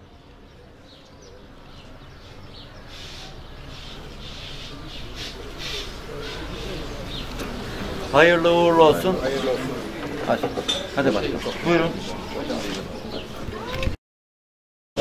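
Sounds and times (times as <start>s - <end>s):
soft murmured voices: 0.0s - 14.0s.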